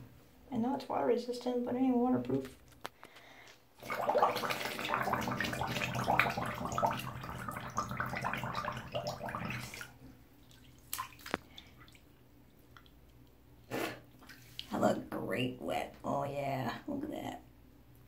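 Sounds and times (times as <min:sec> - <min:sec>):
water drips: 0:03.4 - 0:13.4
breath bubbling through water: 0:03.8 - 0:10.0.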